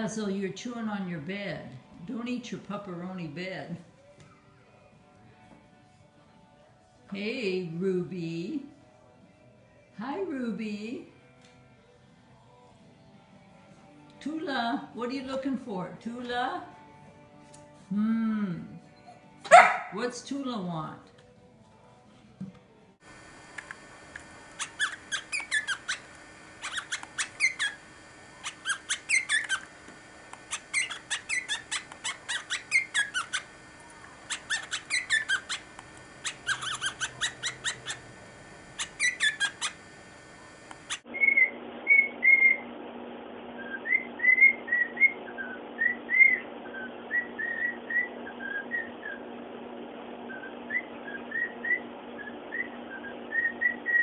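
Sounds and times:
steady low hum: 23.0s - 54.0s
cockatiel chirping and whistling: 24.6s - 27.8s, 28.4s - 29.7s, 30.5s - 33.5s, 34.3s - 35.6s, 36.2s - 38.1s, 38.8s - 39.8s, 40.7s - 42.6s, 43.6s - 49.2s, 50.3s - 54.0s.

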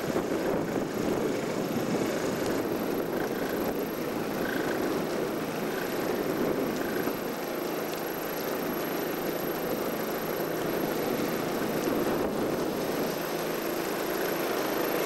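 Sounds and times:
wind buffeting microphone: 0.0s - 7.3s.

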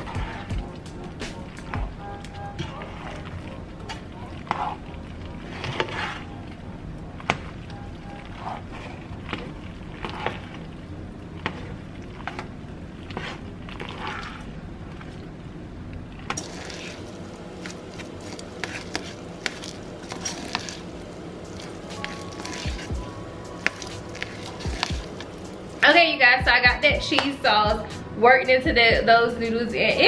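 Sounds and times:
spoon stirring thick sauce: 0.0s - 15.2s, 16.4s - 25.8s.

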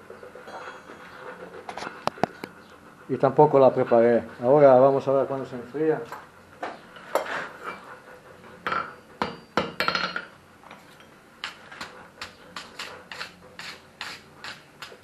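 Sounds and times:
hammer striking iron on anvil: 8.7s - 10.3s.

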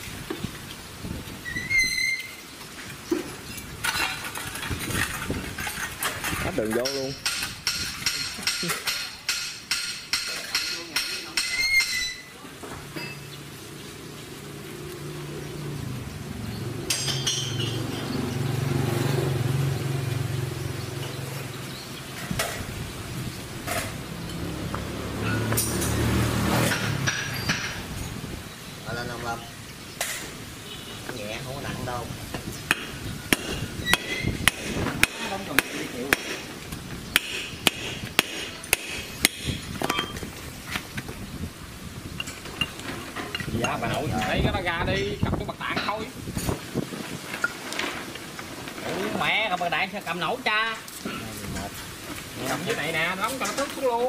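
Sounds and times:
metal tools clinking: 3.8s - 12.3s, 16.9s - 18.2s, 39.8s - 40.3s, 42.2s - 44.3s
hammer striking steel tube: 32.7s - 36.5s, 37.2s - 40.1s.

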